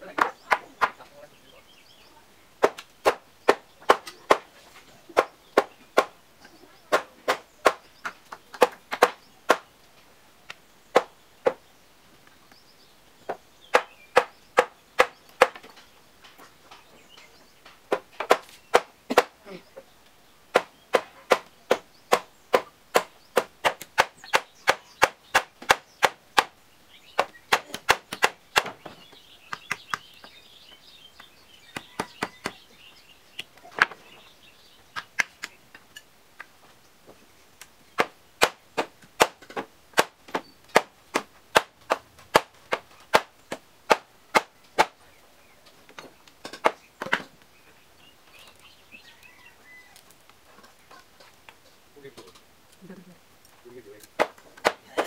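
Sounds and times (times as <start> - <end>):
hand tool chopping wood: 2.6 - 4.5, 6.9 - 9.6, 13.7 - 15.7, 17.9 - 19.4, 20.5 - 26.5, 27.2 - 30.2, 38.0 - 45.0, 54.0 - 55.0.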